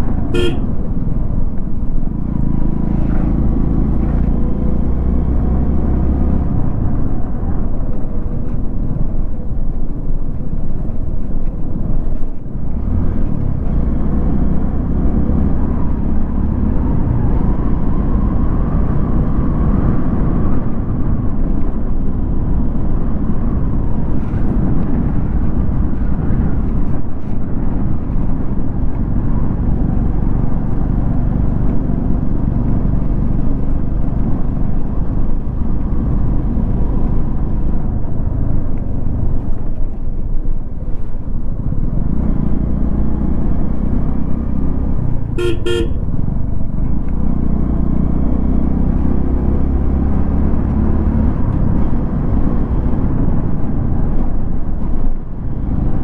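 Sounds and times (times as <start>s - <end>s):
motorcycle engine rumble: 0.0s - 50.6s
wind rushing over microphone: 0.0s - 56.0s
vehicle horn toot: 0.3s - 0.8s, 45.4s - 46.0s.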